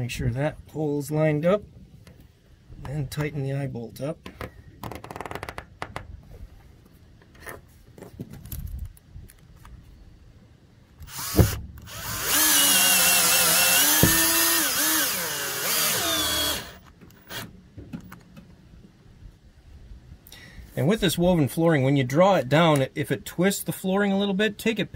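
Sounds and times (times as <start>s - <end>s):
cordless drill motor whine: 11.0s - 17.4s
sharp knock: 14.0s - 14.3s.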